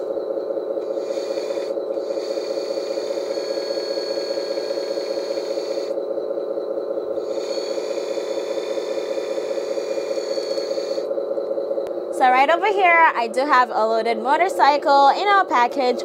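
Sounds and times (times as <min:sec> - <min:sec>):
small hydraulic pump pulsing: 0:00.0 - 0:11.8.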